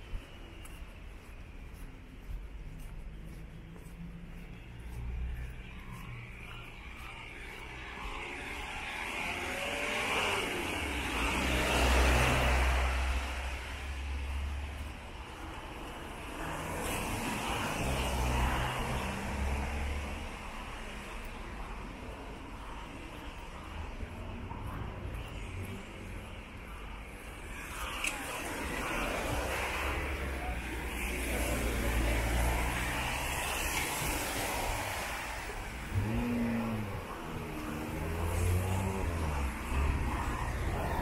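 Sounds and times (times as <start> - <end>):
low rumble of engines: 0.0 - 41.0
car tyres hissing on wet road: 27.8 - 41.0.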